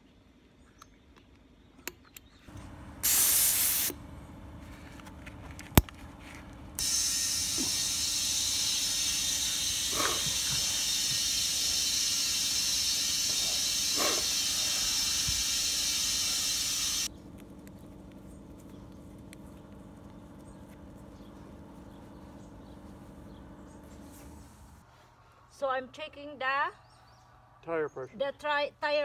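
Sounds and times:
compressed air hissing: 3.0s - 4.0s, 6.8s - 17.1s.

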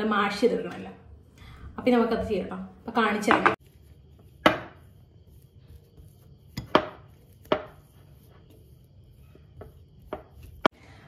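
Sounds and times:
fork mashing potato: 3.6s - 10.8s.

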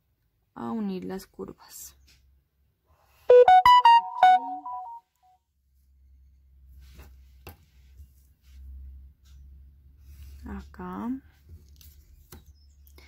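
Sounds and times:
electronic alert melody: 3.3s - 5.0s.

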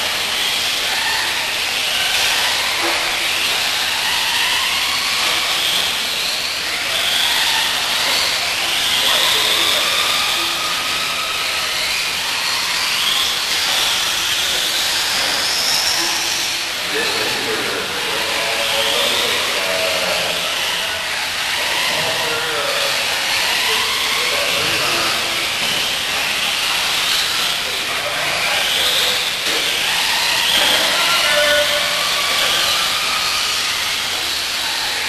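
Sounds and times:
motor whines: 0.0s - 35.0s.

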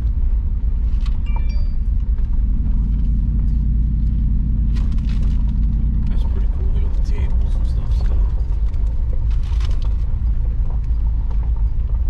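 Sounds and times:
vehicle rumbling on gravel road: 0.0s - 12.0s.

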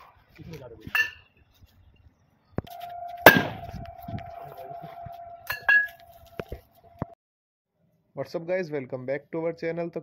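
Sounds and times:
steady ringing tone: 2.7s - 6.5s
firecracker bangs: 3.2s - 4.0s.

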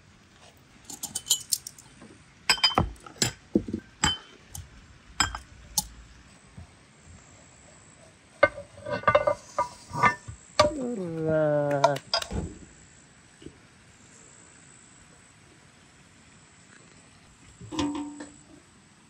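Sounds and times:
iron pan and utensils clinking: 0.9s - 1.8s, 2.5s - 3.4s, 4.0s - 4.6s, 5.2s - 5.9s, 8.4s - 10.8s, 17.6s - 18.4s
pan scraping: 8.4s - 10.9s, 17.6s - 18.4s.

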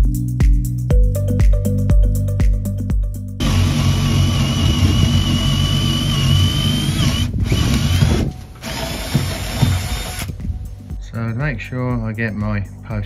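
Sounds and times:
cordless drill boring into wood: 3.4s - 10.3s.

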